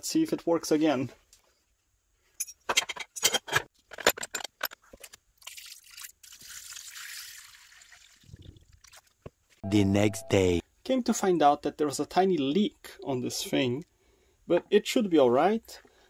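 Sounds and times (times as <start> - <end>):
liquid pouring: 5.4 - 9.1.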